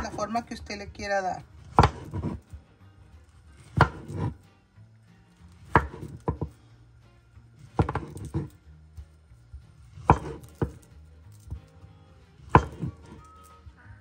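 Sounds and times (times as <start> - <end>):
knife slicing plantain: 0.0 - 0.4, 1.4 - 2.6, 3.4 - 4.4, 5.5 - 6.6, 7.7 - 8.6, 9.8 - 11.6, 12.4 - 13.3
knife knocking on wooden board: 1.7 - 2.4, 3.7 - 4.4, 5.7 - 6.6, 7.8 - 8.5, 10.0 - 10.8, 12.5 - 13.2.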